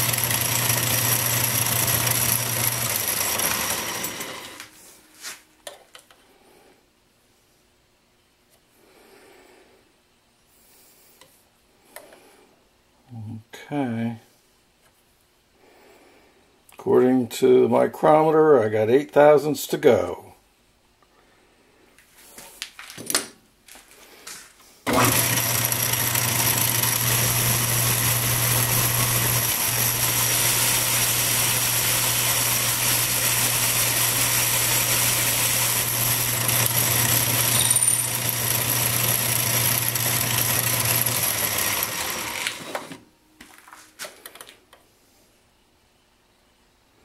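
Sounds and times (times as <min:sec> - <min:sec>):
metal lathe running: 0:00.0 - 0:04.6, 0:24.9 - 0:43.0.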